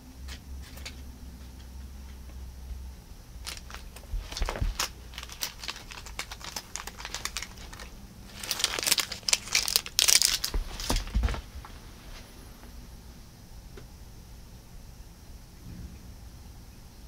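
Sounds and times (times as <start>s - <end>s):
clicks and rustles: 3.4s - 11.8s
crinkling and scratching: 3.4s - 12.4s.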